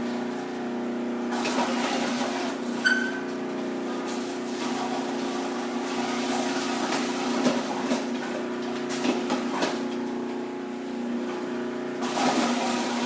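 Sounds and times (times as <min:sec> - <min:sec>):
food processor motor hum: 0:11.8 - 0:13.0.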